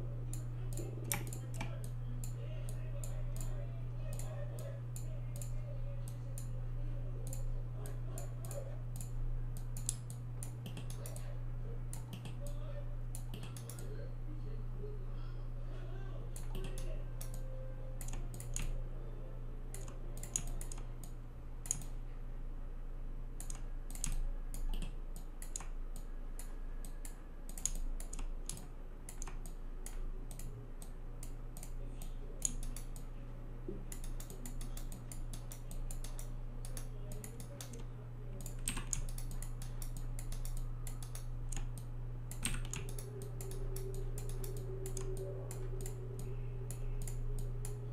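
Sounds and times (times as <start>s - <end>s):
low electrical hum: 0.0s - 47.9s
keyboard keys clicking: 19.7s - 22.0s, 23.4s - 30.9s, 33.9s - 47.8s
mouse buttons clicking: 19.8s - 22.0s.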